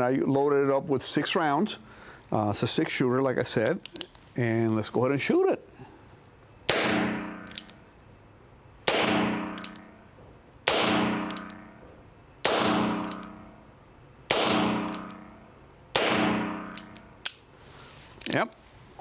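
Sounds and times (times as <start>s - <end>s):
revolver hammer click: 11.3s - 11.6s.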